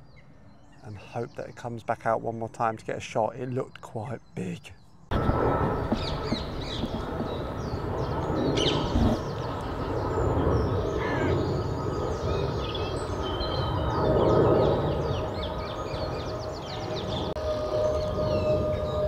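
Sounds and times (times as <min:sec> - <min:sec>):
small birds chirping: 0:00.1 - 0:17.4
steady background rush: 0:05.1 - 0:19.0.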